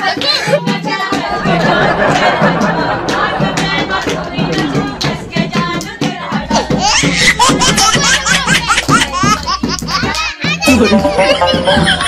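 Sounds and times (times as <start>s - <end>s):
voices: 0.8s - 9.4s.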